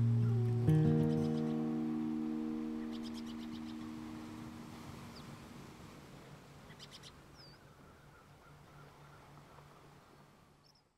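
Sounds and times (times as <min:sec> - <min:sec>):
background music chord: 0:00.0 - 0:04.9
faint birds chirping: 0:00.0 - 0:05.4.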